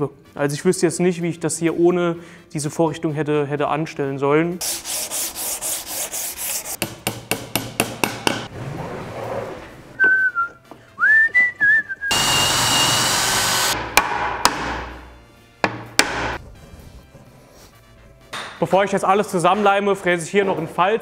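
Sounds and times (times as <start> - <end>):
wooden mallet knocking wood panels: 6.8 - 8.5, 13.8 - 15.0, 15.6 - 16.4
cordless drill running: 12.1 - 13.8.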